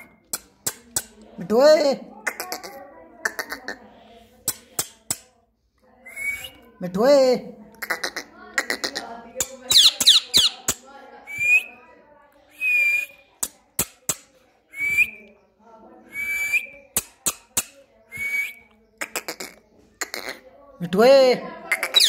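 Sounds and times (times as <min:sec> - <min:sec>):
parrot chattering: 0:02.2 - 0:03.9, 0:07.8 - 0:10.8, 0:19.0 - 0:20.4, 0:21.6 - 0:22.0.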